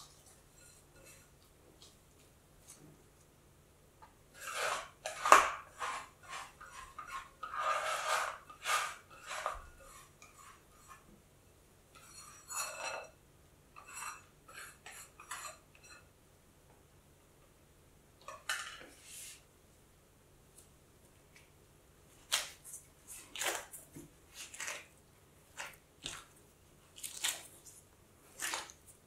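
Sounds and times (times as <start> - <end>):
dough scraped from glass bowl: 4.3 - 11.1, 12.0 - 13.1, 13.8 - 16.1.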